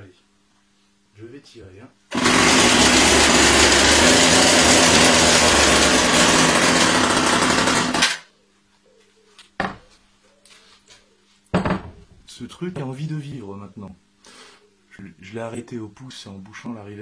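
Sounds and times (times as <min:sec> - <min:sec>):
two-stroke engine running: 0:02.1 - 0:08.2.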